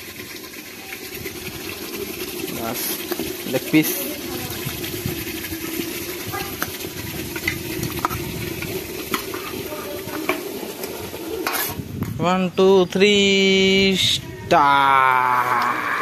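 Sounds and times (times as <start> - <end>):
chicken sizzling in a pot: 0.0 - 12.0
ladle scraping steel bowl: 2.4 - 11.9.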